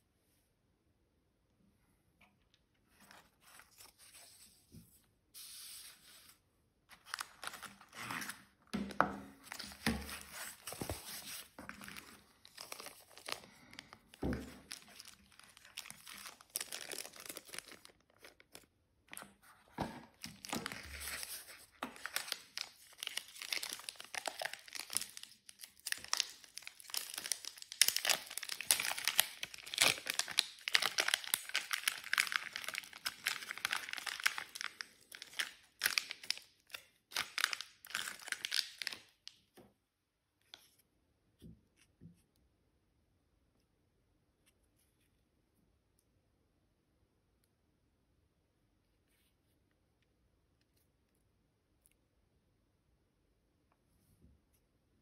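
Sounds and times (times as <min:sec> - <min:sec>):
plastic bags crinkling: 0:06.9 - 0:39.2.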